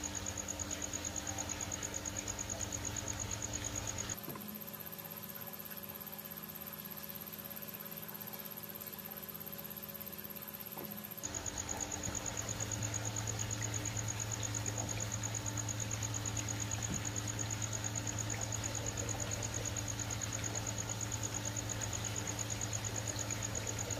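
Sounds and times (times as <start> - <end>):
pond pump humming: 0.0 - 23.9.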